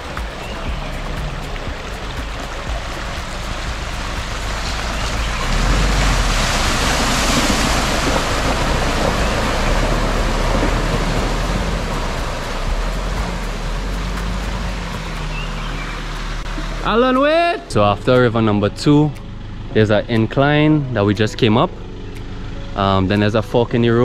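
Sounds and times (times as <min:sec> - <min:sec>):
tyres splashing through water: 0:00.0 - 0:17.5
truck engine running low: 0:00.0 - 0:24.0.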